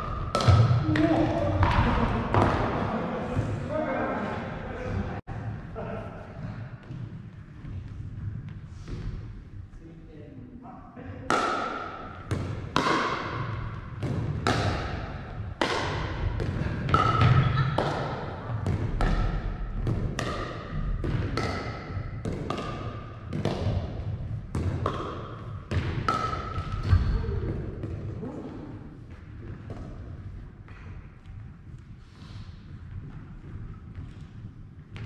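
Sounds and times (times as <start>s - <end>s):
paddles hitting ball: 0.0s - 3.6s, 11.3s - 28.2s
ball bouncing on wooden floor: 0.1s - 2.8s, 11.3s - 28.2s, 32.9s - 35.0s.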